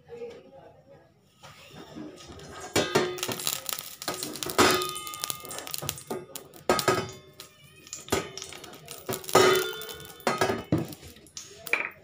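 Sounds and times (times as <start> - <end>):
frying pan clanking on burner grate: 2.2 - 12.0.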